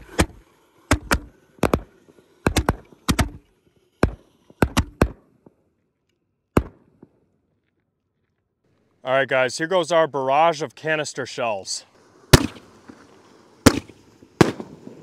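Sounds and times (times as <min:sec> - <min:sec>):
firework shells bursting: 0:00.0 - 0:05.8, 0:11.9 - 0:15.0.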